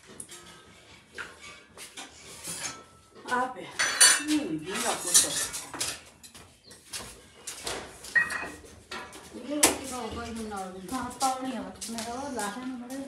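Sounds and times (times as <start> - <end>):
steel utensils clattering: 0.0 - 6.4, 8.1 - 9.2.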